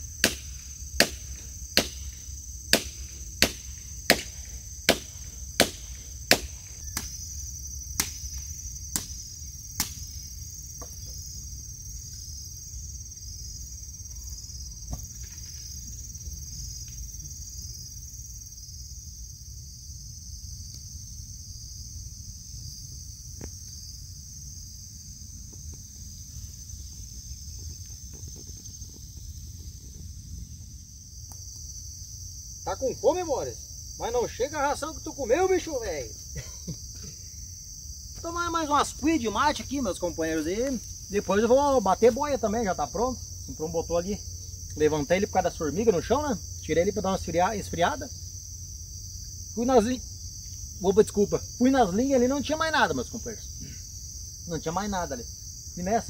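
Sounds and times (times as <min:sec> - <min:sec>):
insects chirring: 0:00.0 - 0:56.0
sharp knocks: 0:02.7 - 0:07.1.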